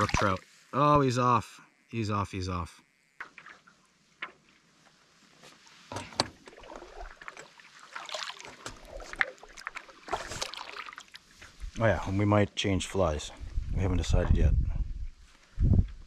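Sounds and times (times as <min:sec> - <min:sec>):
paddle strokes in water: 0:05.2 - 0:11.8.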